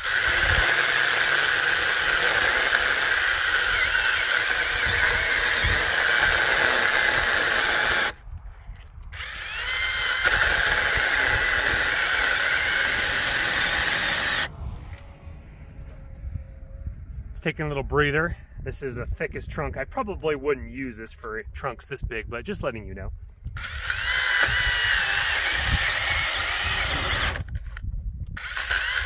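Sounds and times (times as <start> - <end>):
chainsaw cutting log: 0.0 - 8.2, 9.1 - 14.5, 23.6 - 27.7, 28.4 - 29.0.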